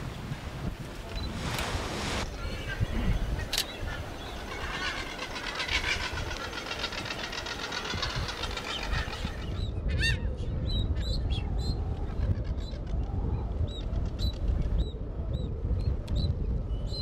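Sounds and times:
low wind rumble: 0.0 - 17.0
dense fast bird chatter: 2.4 - 9.6.

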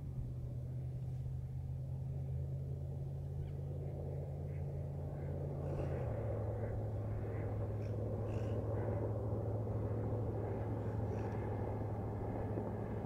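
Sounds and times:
low engine drone: 0.0 - 13.0
faint bird calls: 3.4 - 11.8.

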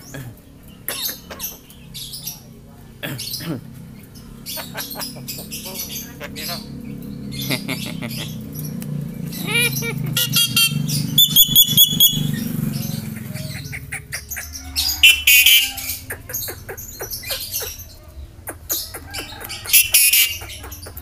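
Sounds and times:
bird harsh squawks: 0.9 - 1.7, 9.3 - 21.0
bird whistled notes: 10.2 - 12.5.

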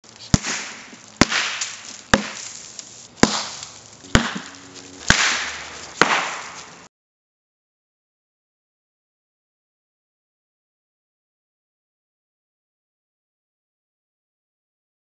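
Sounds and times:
sharp cracks: 0.0 - 6.9.

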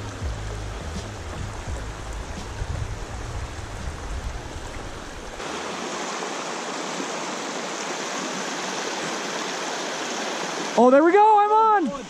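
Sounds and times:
low rumble: 0.0 - 5.4
creek rushing over rocks: 0.0 - 12.0.

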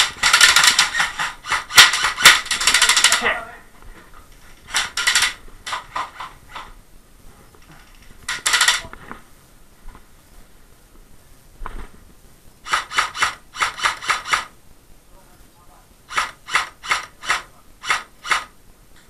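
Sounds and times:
sharp wooden knocks and clatter: 0.0 - 3.3, 4.7 - 6.7, 8.2 - 8.9, 12.7 - 14.5, 16.1 - 18.5.

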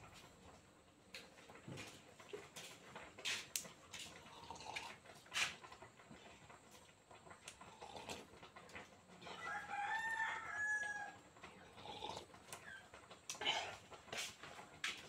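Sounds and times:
rooster crowing: 9.2 - 11.4.

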